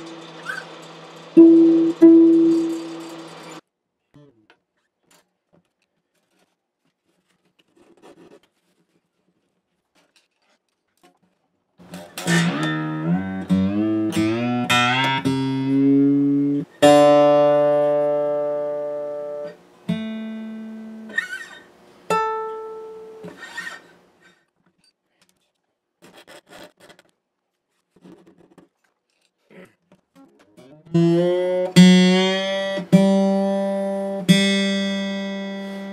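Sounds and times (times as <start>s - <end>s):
acoustic guitar strings plucked: 0.0s - 3.5s, 12.0s - 21.2s, 30.9s - 35.9s.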